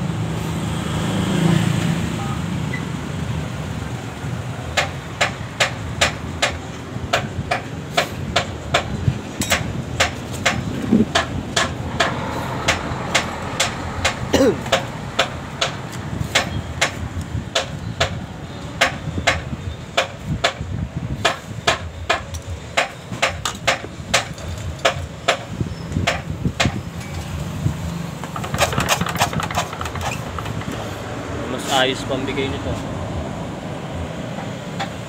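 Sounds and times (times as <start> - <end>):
sharp metallic taps: 4.7 - 27.3, 28.2 - 30.9.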